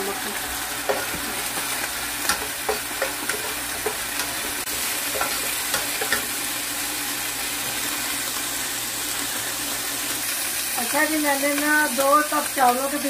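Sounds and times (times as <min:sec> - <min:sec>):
onions sizzling in hot oil: 0:00.0 - 0:13.0
spatula scraping and tapping pan: 0:00.8 - 0:06.3.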